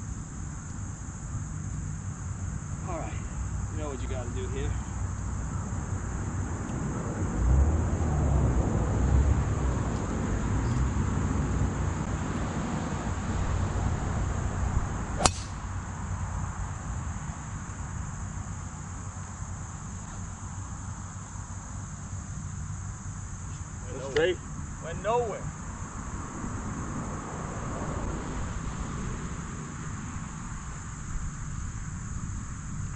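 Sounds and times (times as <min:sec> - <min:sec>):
high insect drone: 0:00.0 - 0:32.9
golf club striking ball: 0:15.2 - 0:15.8.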